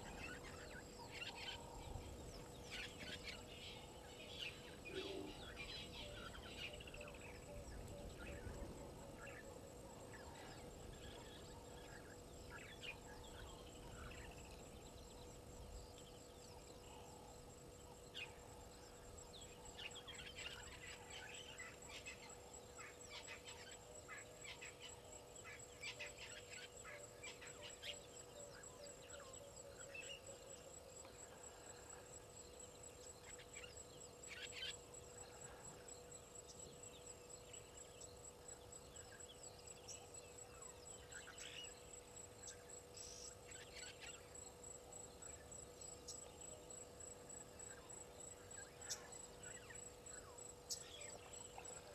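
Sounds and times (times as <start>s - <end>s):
bird calls and chirps: 31.3s - 46.7s, 47.6s - 51.9s.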